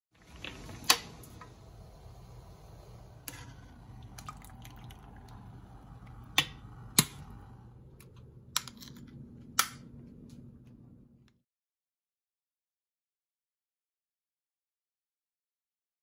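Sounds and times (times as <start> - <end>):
low steady hum: 0.2 - 11.4.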